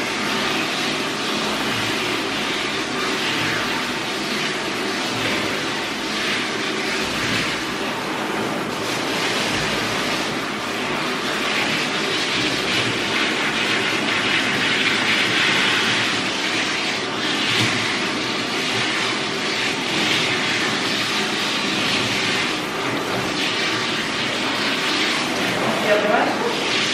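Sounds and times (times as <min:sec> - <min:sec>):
hose spraying water: 0:00.0 - 0:26.9.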